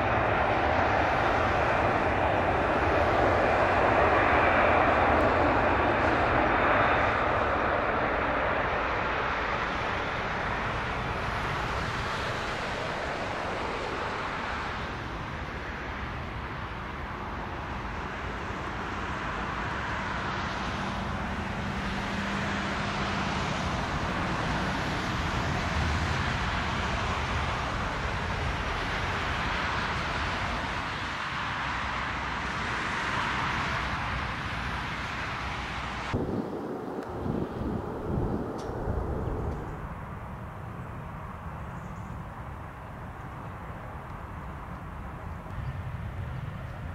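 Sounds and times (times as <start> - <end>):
jet engine rushing: 0.0 - 16.7, 32.4 - 41.6.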